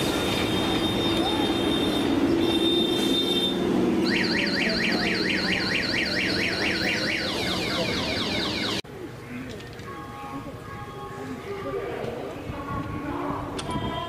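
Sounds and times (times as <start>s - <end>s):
electronic warning siren yelping: 4.0s - 8.8s.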